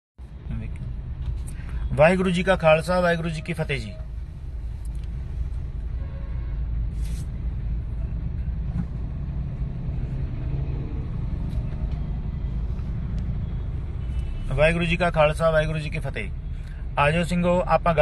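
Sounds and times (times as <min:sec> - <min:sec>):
vehicle rumble inside car: 0:06.8 - 0:15.8.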